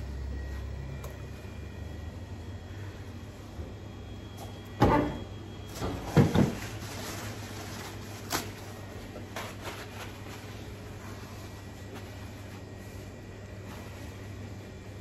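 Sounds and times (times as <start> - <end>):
steady low hum: 0.0 - 15.0
paper towel rustling: 6.2 - 14.4.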